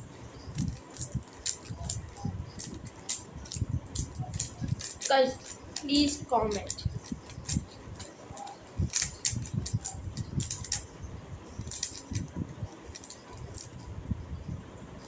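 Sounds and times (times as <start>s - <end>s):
plastic cubes clicking: 0.5s - 5.6s, 6.5s - 10.8s, 11.6s - 12.3s, 12.9s - 13.8s.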